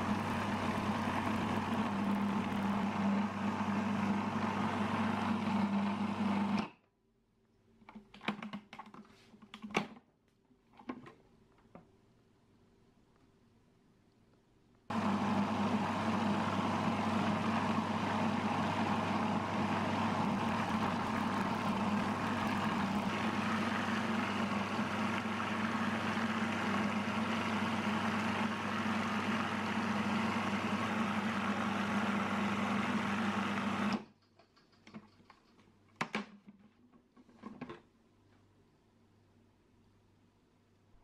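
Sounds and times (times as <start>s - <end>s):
food processor motor running: 0.0s - 6.6s, 14.9s - 34.0s.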